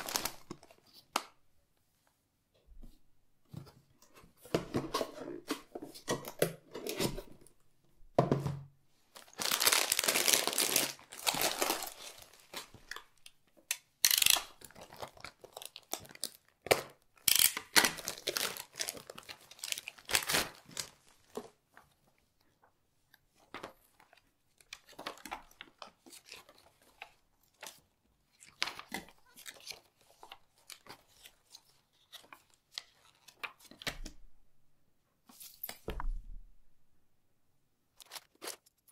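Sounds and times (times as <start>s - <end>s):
cardboard and paper rustling: 9.1s - 13.2s, 38.0s - 38.9s.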